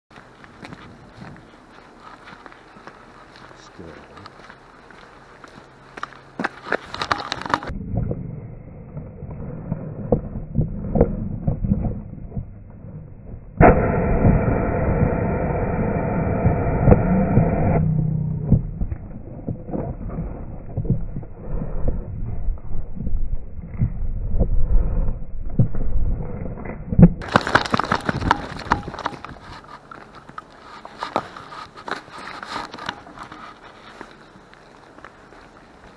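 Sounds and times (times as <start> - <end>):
dry leaves and twigs crackling: 0.1 - 7.7, 27.2 - 35.9
camera tumbling thumps: 6.6 - 7.7, 27.2 - 29.8
muffled low rumbling: 7.0 - 27.3.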